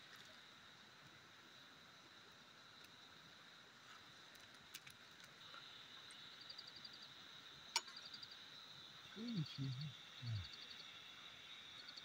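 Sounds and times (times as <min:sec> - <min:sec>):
high-pitched insect drone: 0:05.4 - 0:12.0.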